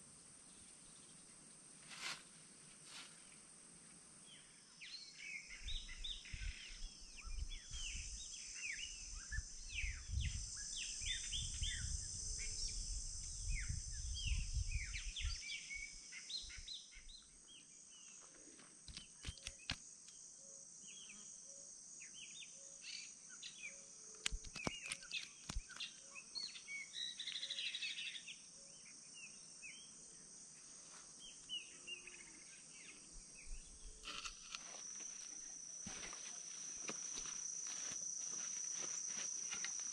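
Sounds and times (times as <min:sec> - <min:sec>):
insect trill: 0:00.0 - 0:39.9
sharp clicks: 0:18.8 - 0:20.2, 0:24.1 - 0:25.9.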